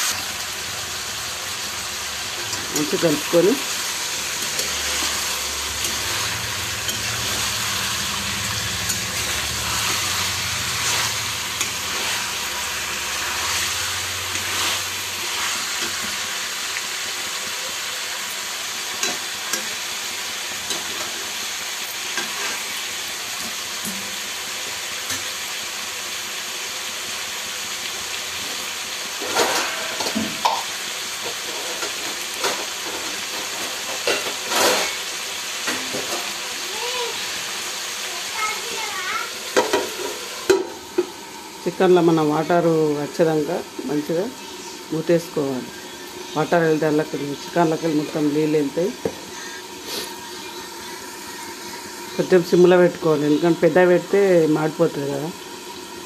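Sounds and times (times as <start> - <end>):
chicken sizzling in a pan: 0.0 - 56.0
spatula scraping a pan: 2.3 - 16.8, 20.5 - 23.6, 29.2 - 30.5, 31.2 - 36.4.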